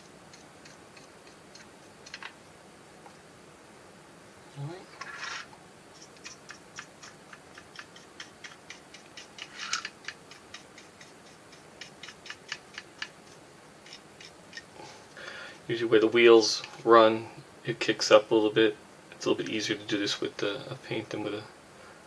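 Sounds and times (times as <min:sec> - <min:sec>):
paintbrush dabbing on plastic: 0:00.0 - 0:02.3, 0:05.9 - 0:14.8.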